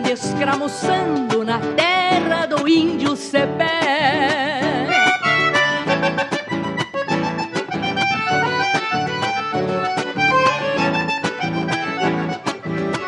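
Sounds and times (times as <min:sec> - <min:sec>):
acoustic guitar strumming: 0:00.0 - 0:13.0
piano accordion melody: 0:04.7 - 0:13.0.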